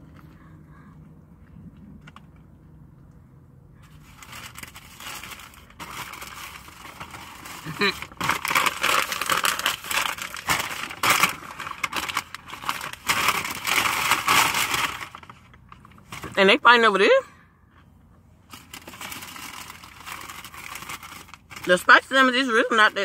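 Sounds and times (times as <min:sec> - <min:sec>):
paper bag rustling and crinkling: 0:03.9 - 0:16.4, 0:18.5 - 0:23.0.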